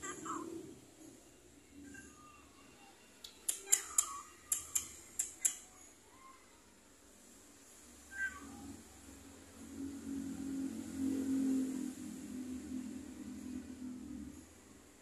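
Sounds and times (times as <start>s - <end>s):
sharp clicks: 3.2s - 5.7s
cats meowing: 8.1s - 8.8s.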